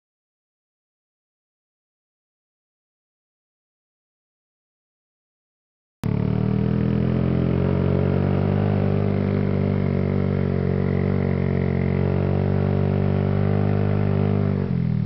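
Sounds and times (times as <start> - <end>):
motorcycle engine drone: 6.0 - 15.0.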